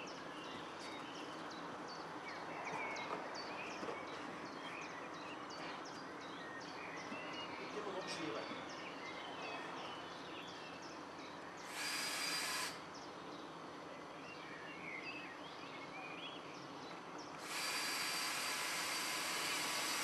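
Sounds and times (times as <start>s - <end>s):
cordless drill driving screws: 11.6s - 12.8s, 17.4s - 20.0s.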